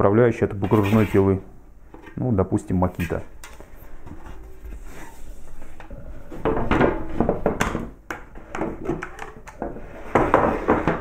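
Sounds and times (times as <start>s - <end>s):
wooden blocks knocking on workbench: 6.4s - 11.0s.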